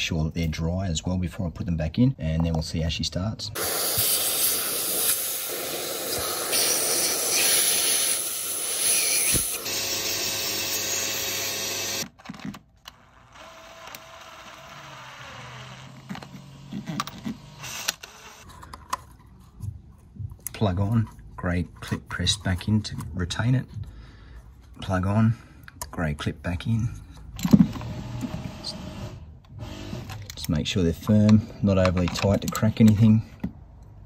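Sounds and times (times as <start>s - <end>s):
vacuum cleaner whining: 3.6s - 12.0s.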